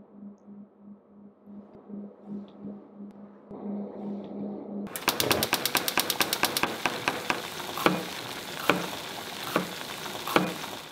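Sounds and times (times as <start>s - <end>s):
food sizzling in frying pan: 4.9s - 10.9s.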